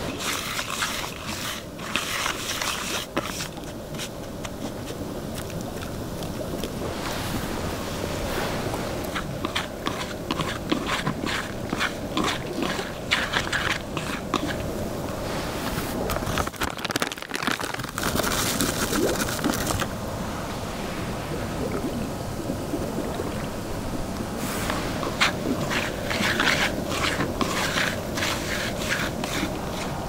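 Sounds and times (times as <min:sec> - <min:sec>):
hands kneading crunchy bait: 0:00.0 - 0:14.8, 0:16.1 - 0:19.9, 0:24.4 - 0:30.0
pouring hiss: 0:06.8 - 0:16.2, 0:17.1 - 0:30.0.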